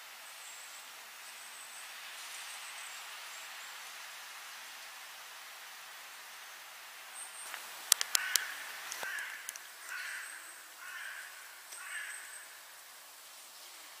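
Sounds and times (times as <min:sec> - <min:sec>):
sharp clicks: 0:07.5 - 0:09.7
crow cawing: 0:08.1 - 0:12.6.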